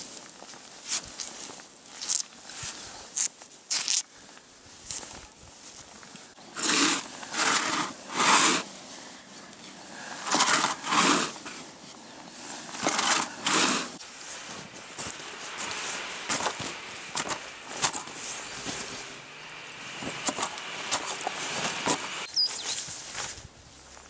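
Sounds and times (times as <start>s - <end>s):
crunching in snow: 10.0s - 24.0s.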